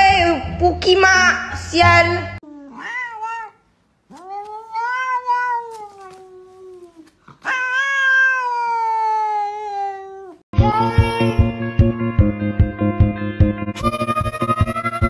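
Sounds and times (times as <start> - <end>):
cat yowling: 2.6 - 11.4
cat meow: 2.7 - 11.4.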